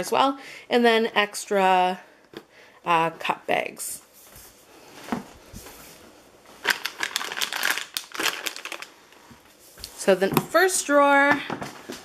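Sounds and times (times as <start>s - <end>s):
plastic packaging crinkling and clicking: 6.6s - 9.2s.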